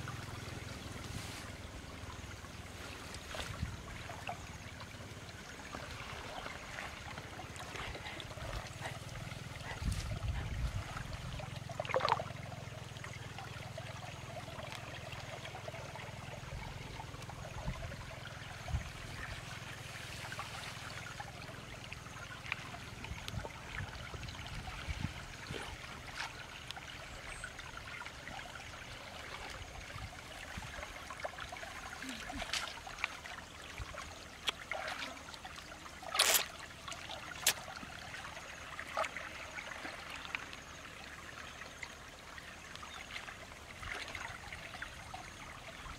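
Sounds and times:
water trickling through channel: 0.0 - 45.9.

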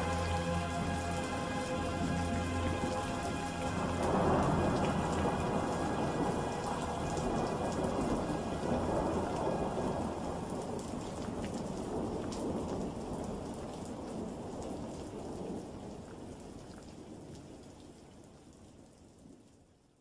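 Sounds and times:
thunder rumbling: 0.0 - 13.4
heavy rain: 0.0 - 19.4.

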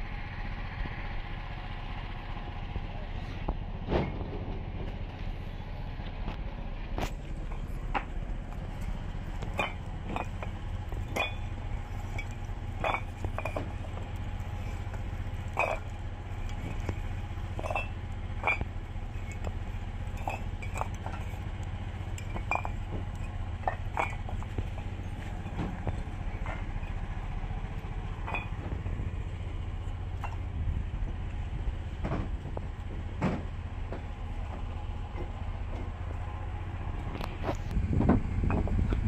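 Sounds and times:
steady low hum: 0.0 - 39.0
hard objects clinking and knocking: 8.8 - 27.0, 28.2 - 28.9.

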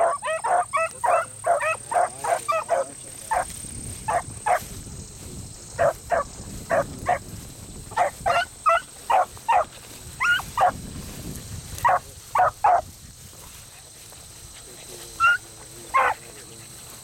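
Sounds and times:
dogs barking: 0.0 - 4.6, 5.8 - 7.3, 7.9 - 10.8, 11.8 - 12.9, 15.2 - 16.6.

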